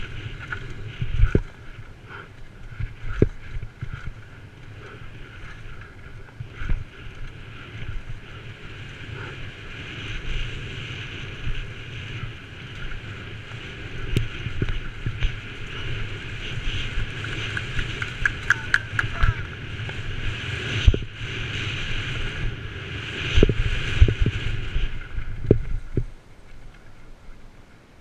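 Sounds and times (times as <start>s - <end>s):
bike knocking on bumps: 0.0s - 4.6s, 16.7s - 20.0s
bike chain and frame rattling: 0.0s - 20.2s
wind on microphone: 0.0s - 28.0s
tyres on dirt: 12.4s - 20.8s.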